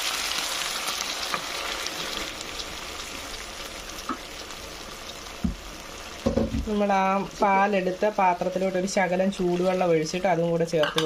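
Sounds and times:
food sizzling in a pan: 0.0s - 11.0s
dull knock: 6.2s - 6.7s.

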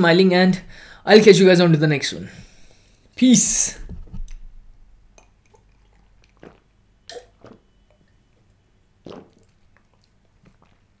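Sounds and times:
person gulping and swallowing: 5.1s - 11.0s.

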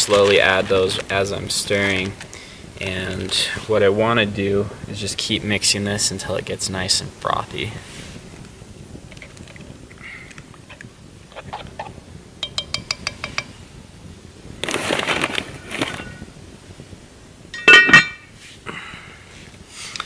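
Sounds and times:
metal spoon clinking against pot: 12.4s - 13.5s, 17.6s - 18.2s
cast iron lid clanging: 17.5s - 18.3s.

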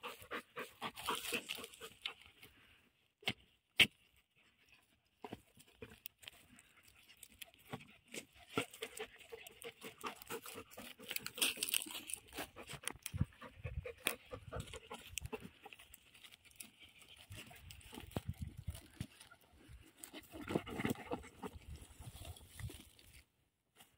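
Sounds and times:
dogs digging in dry straw: 0.0s - 2.3s, 5.4s - 23.2s.

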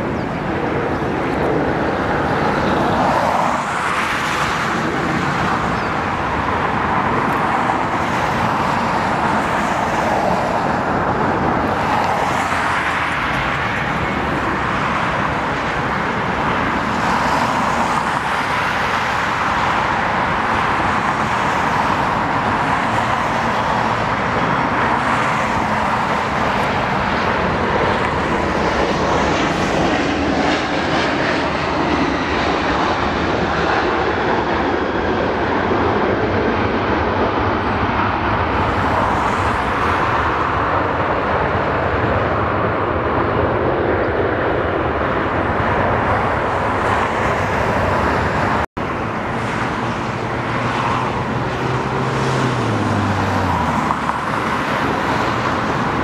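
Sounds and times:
jet engines roaring: 0.0s - 56.0s.

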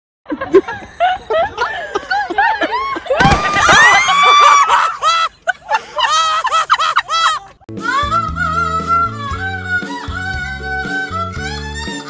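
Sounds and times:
people shouting and laughing: 0.3s - 8.6s.

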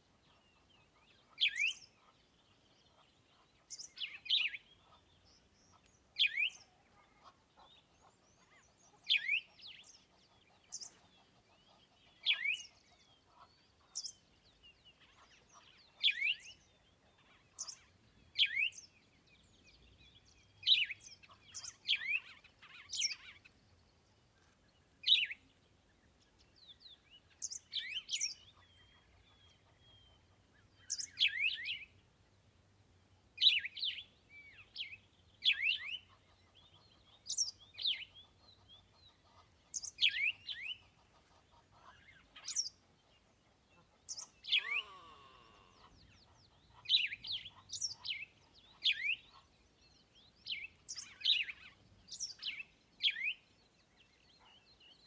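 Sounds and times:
birds chirping: 0.2s - 32.6s, 33.3s - 55.0s.

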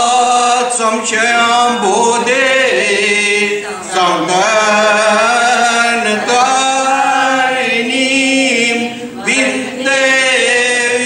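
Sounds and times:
voices chanting: 0.9s - 11.0s.

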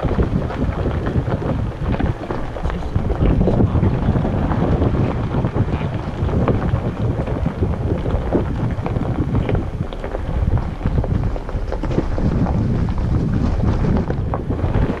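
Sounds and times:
stones crunching under tyres: 0.0s - 15.0s
tyres rumbling on gravel: 0.0s - 15.0s
wind buffeting the microphone: 0.0s - 15.0s.

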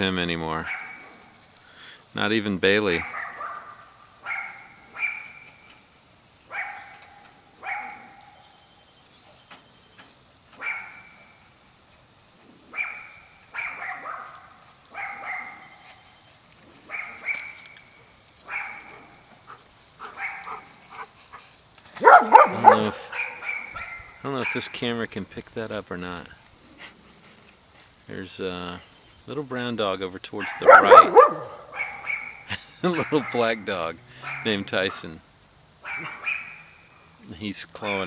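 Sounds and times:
dog barking: 0.6s - 1.3s, 2.9s - 5.4s, 6.5s - 8.4s, 10.6s - 11.2s, 12.7s - 15.8s, 16.9s - 17.5s, 18.4s - 21.1s, 22.0s - 24.7s, 30.4s - 34.6s, 35.8s - 36.6s.

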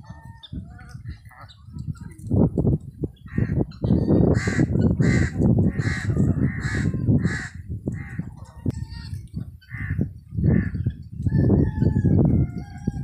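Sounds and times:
guineafowl harsh calls: 3.3s - 10.8s.

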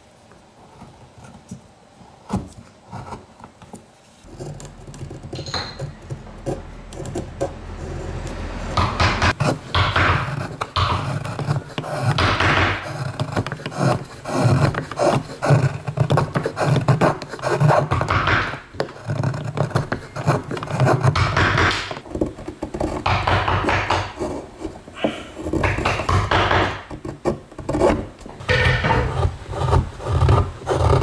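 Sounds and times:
chisel scraping wood: 4.2s - 31.0s
wood knocking on wood: 8.3s - 24.3s, 25.0s - 31.0s.

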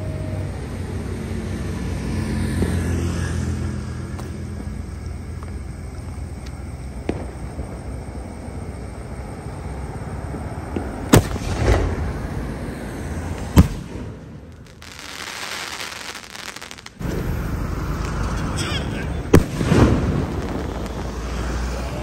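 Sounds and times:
fireworks crackling: 4.0s - 22.0s
fireworks bangs: 6.9s - 8.5s, 10.2s - 22.0s
firework hiss: 10.6s - 22.0s.

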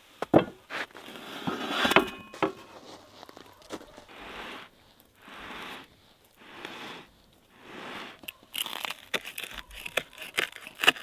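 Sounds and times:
short metallic ring: 2.0s - 2.5s
soft crunching chews: 2.7s - 11.0s.

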